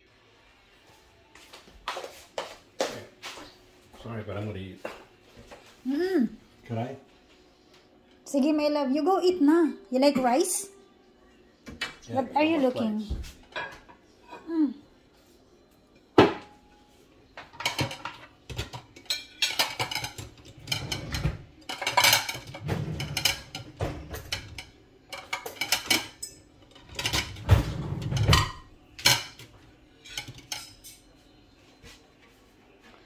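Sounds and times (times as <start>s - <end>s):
dishes and cutlery clinking: 11.7s - 14.5s, 15.8s - 32.0s.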